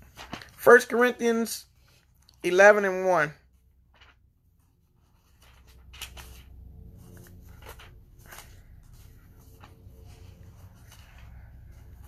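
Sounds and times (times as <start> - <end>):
pages being turned: 0.0 - 2.8, 3.5 - 12.0
low steady hum: 3.4 - 12.0.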